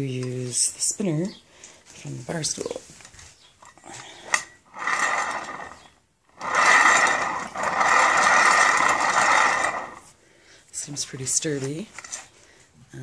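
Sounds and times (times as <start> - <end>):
swivel plate spinning with whir: 4.2 - 10.1.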